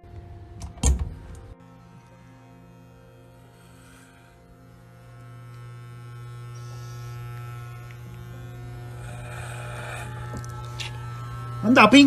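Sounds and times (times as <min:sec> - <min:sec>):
electric hair clippers buzzing: 0:01.1 - 0:12.0.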